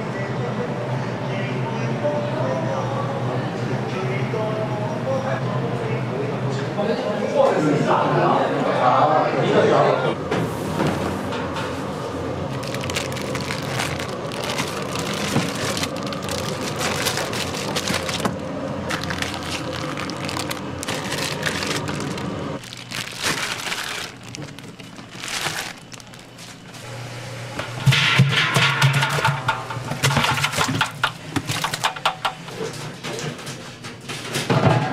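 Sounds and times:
steady low hum: 10.0s - 32.8s
plastic bags crinkling: 12.5s - 26.8s.

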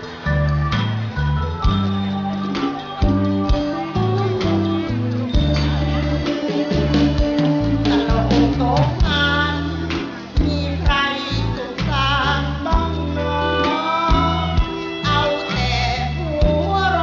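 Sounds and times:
live band bass notes: 0.0s - 17.0s
person singing wavering notes: 0.3s - 17.0s.

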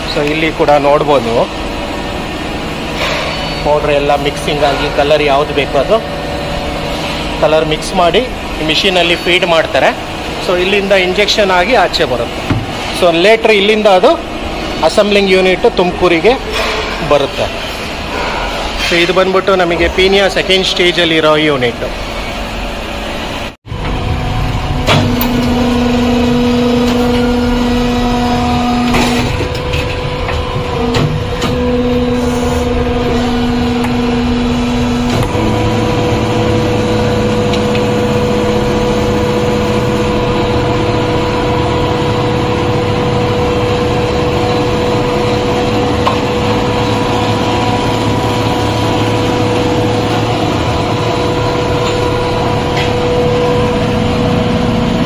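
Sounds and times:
machine mechanical hum: 0.0s - 55.0s.

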